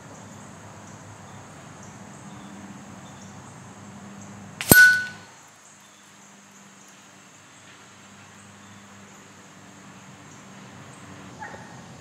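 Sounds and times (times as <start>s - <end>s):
bell ringing: 4.6s - 5.3s
pellet striking steel target: 4.6s - 5.3s.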